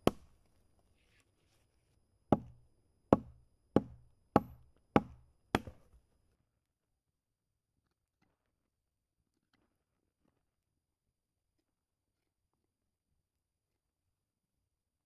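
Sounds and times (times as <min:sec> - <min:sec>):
hatchet chopping branch: 0:00.0 - 0:00.4, 0:02.3 - 0:06.0.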